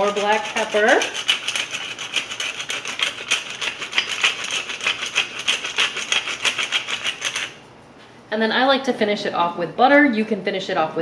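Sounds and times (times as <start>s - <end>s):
pepper mill grinding: 0.0s - 7.6s.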